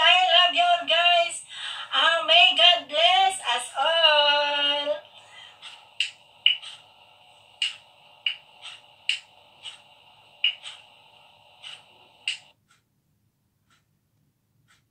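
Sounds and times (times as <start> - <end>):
steady background hum: 0.0 - 12.8.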